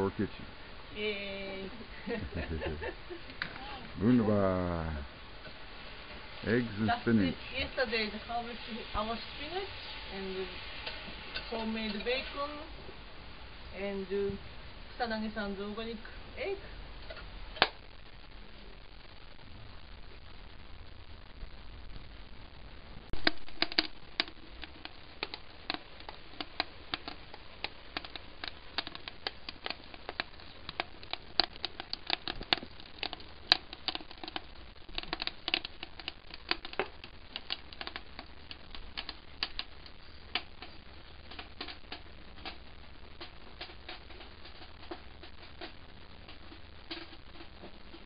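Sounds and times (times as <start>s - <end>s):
food frying with crackling pops: 0.0s - 48.0s.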